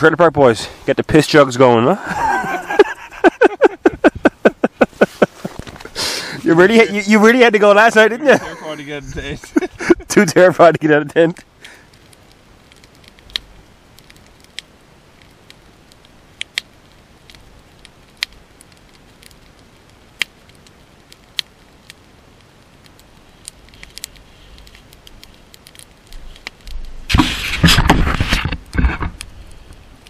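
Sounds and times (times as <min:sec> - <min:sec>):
campfire crackling and popping: 0:00.0 - 0:30.0
clothing rustle: 0:04.8 - 0:06.5.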